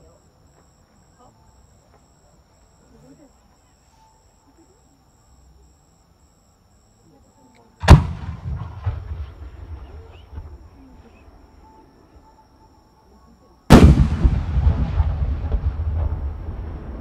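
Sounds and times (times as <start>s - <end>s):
firework shells booming: 7.8s - 10.6s, 13.7s - 17.0s.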